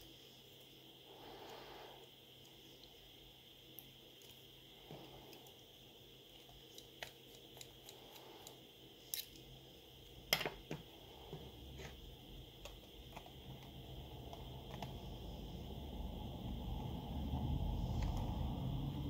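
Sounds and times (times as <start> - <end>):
faint low rumble: 11.1 - 19.0.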